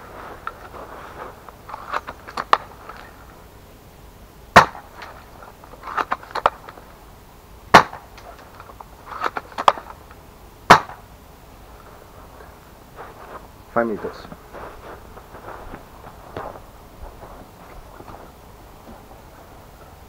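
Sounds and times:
airsoft rifle shot: 4.6 - 4.9, 7.7 - 8.1, 10.7 - 11.0.

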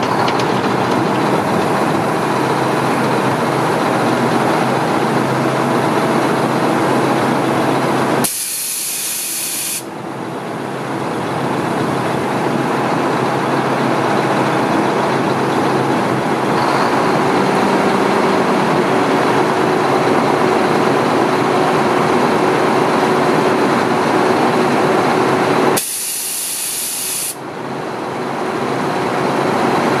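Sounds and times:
truck diesel engine running: 0.0 - 8.3, 9.8 - 30.0
air hissing: 8.2 - 9.9, 25.8 - 27.4.

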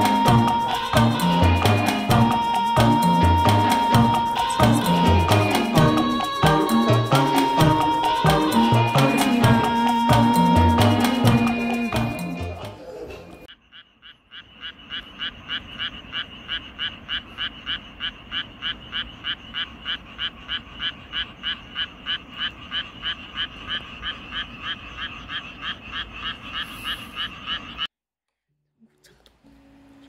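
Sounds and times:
frogs croaking: 0.0 - 27.9.

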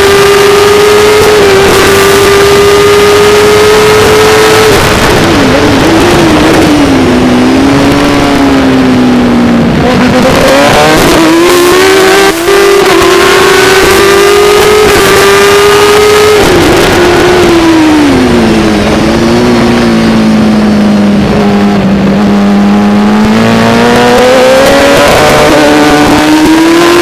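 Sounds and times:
racing motorcycle engine: 0.0 - 27.0
wind noise: 0.0 - 27.0.

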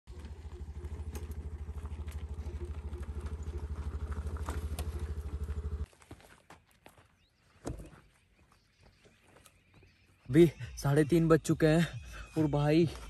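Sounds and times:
motor scooter engine running: 0.1 - 5.9.

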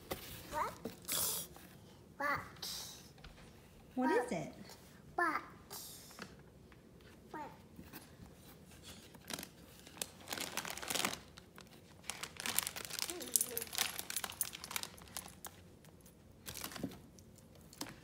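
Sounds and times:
plastic bag crinkling: 9.0 - 18.0.

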